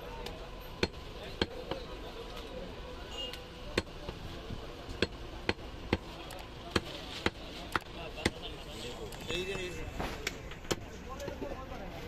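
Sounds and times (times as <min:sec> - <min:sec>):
murmur of voices: 0:00.0 - 0:12.0
cleaver chopping meat on wood: 0:00.8 - 0:01.8, 0:05.0 - 0:06.1.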